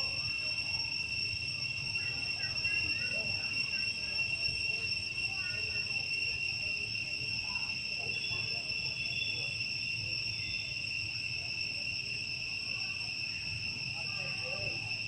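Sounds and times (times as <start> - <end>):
insects droning: 0.0 - 15.0.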